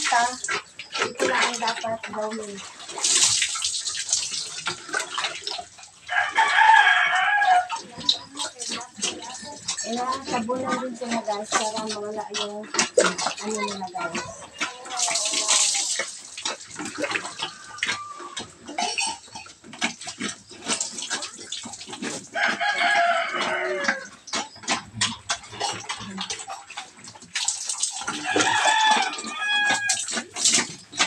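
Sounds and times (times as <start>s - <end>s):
water splashing on concrete: 0.0s - 7.0s, 7.6s - 31.0s
rooster crowing: 6.1s - 7.8s, 17.4s - 18.5s, 22.4s - 24.1s, 28.2s - 30.1s.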